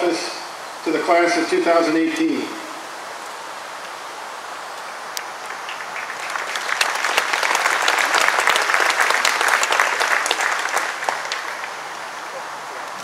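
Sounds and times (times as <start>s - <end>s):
audience applauding: 5.4s - 12.4s.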